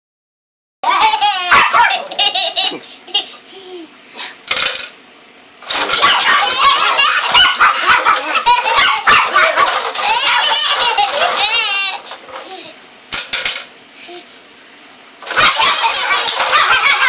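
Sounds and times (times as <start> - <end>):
toddler laughing and squealing: 5.9 - 12.8, 15.3 - 17.0.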